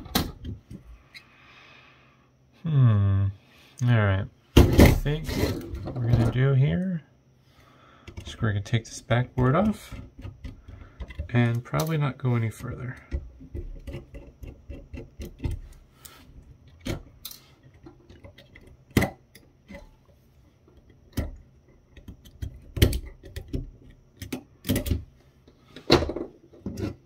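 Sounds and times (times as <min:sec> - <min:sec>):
plastic parts clicking and tapping: 0:08.0 - 0:27.0.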